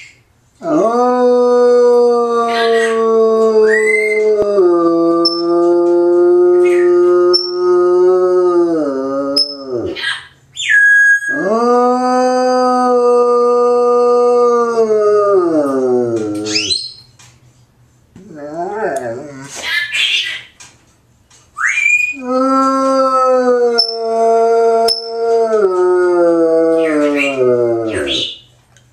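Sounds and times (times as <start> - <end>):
dog howling: 0.6 - 17.0, 18.2 - 19.5, 21.7 - 28.4
dog whining: 5.2 - 7.7, 9.3 - 11.7, 16.0 - 17.0, 21.8 - 25.7.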